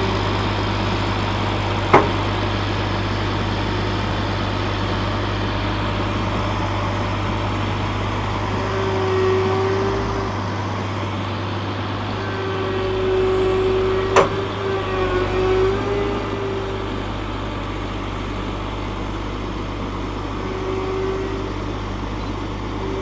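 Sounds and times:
high whine: 0.0s - 23.0s
tractor diesel engine droning: 0.0s - 23.0s
sharp clank: 1.9s - 2.3s.

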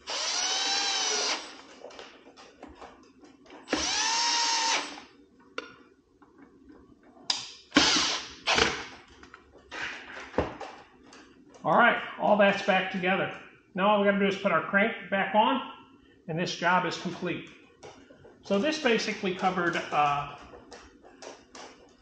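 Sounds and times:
cordless drill driving screws: 0.0s - 1.7s, 3.6s - 5.0s, 7.8s - 8.8s.

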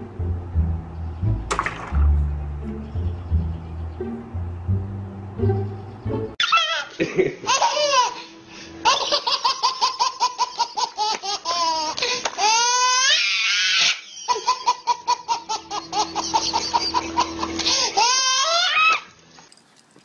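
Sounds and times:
baby squealing: 6.4s - 8.2s, 11.4s - 14.6s, 17.5s - 19.1s
baby belly-laughing: 6.4s - 19.0s.

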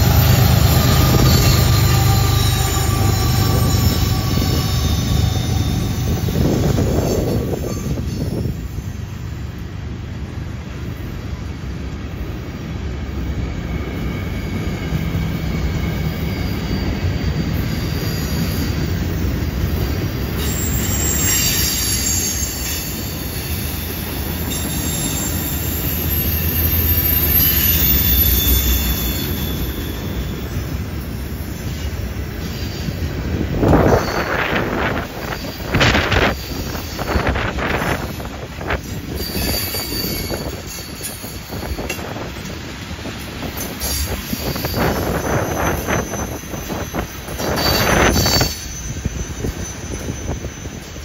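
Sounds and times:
high-pitched wheel squeal: 0.0s - 8.6s, 19.8s - 30.8s, 33.6s - 42.0s, 43.8s - 51.0s
freight car wheels rumbling on rail: 0.0s - 51.0s
wind rushing on microphone: 2.7s - 8.8s, 32.9s - 51.0s.

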